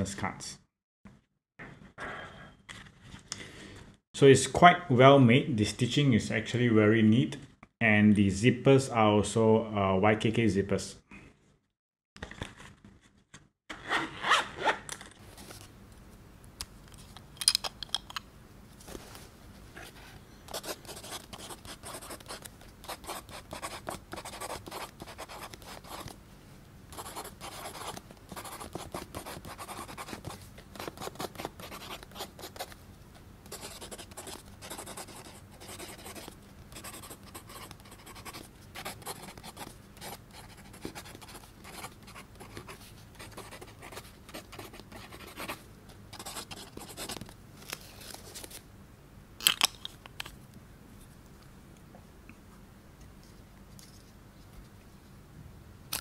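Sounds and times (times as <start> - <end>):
fountain pen scratching on paper: 20.5 - 26.1, 27.0 - 32.8, 33.5 - 45.6, 46.2 - 47.2.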